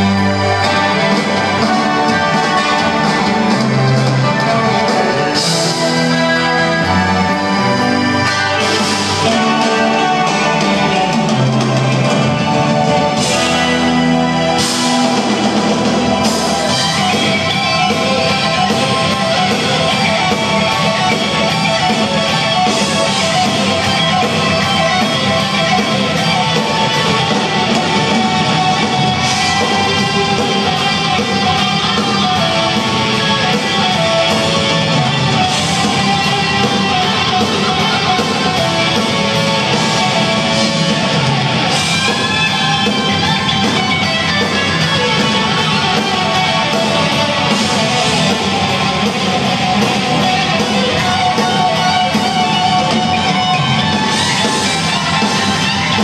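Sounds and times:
electric guitar: 0.0 - 56.0
live rock band playing: 0.0 - 56.0.

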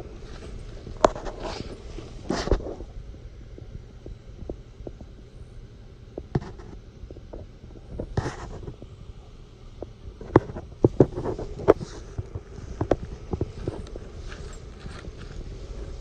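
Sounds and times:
microphone handling: 0.0 - 2.9, 9.8 - 16.0
footsteps on dry grass: 0.0 - 3.0, 10.4 - 16.0
wind rumbling on microphone: 0.0 - 16.0
rustle: 9.6 - 16.0.

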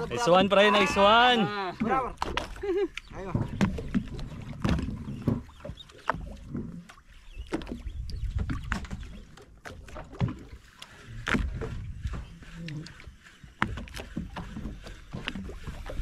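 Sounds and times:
water lapping against boat hull: 0.0 - 16.0
low rumble of wind: 1.4 - 16.0.

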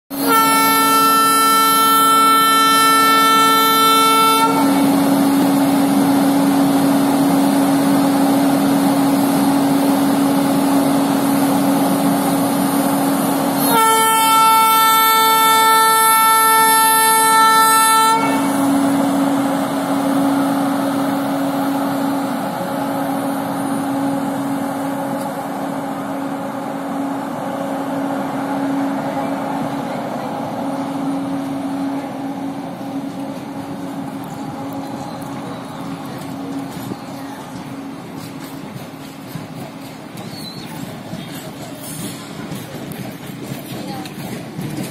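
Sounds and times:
train horn blast: 0.1 - 5.0, 13.6 - 18.8
electric locomotive humming: 0.1 - 44.9
train rumbling on rails: 0.1 - 44.9.

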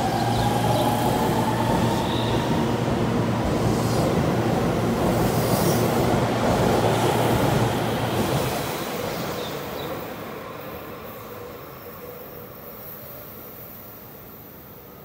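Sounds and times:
electric train running past: 0.0 - 15.0.

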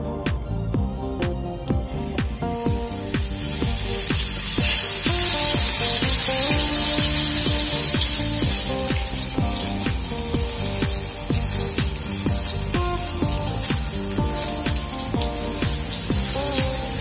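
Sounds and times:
background music with beat: 0.0 - 17.0
mushrooms sizzling in oil: 2.5 - 17.0.

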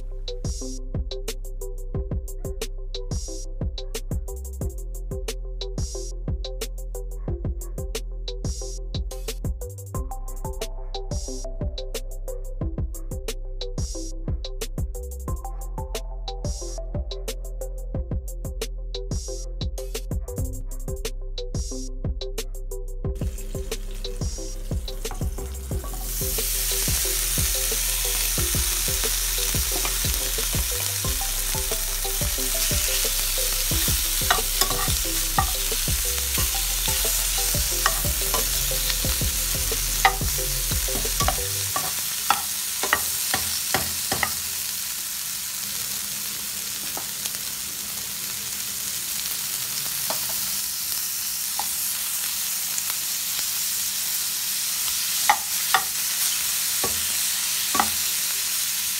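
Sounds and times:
shrimp sizzling in a skillet: 23.2 - 58.9
spatula scraping a pan: 34.3 - 35.5.

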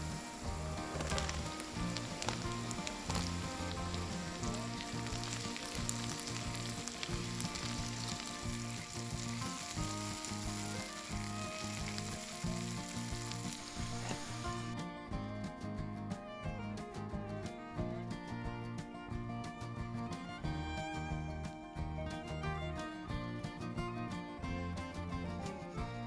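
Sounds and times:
vegetables sizzling in oil: 0.0 - 14.7
vegetables dropping into pan: 0.6 - 10.4.

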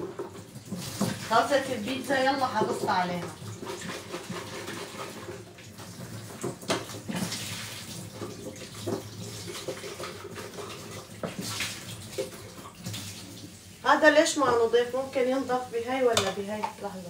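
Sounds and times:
dishes being rinsed by hand: 0.0 - 17.0
tap running into a steel sink: 16.1 - 16.8.

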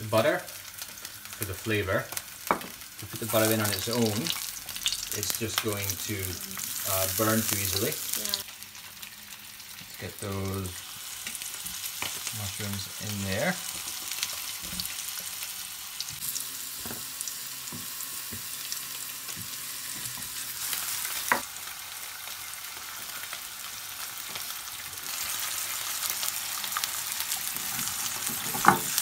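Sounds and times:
mushrooms sizzling in a frying pan: 0.0 - 29.0.

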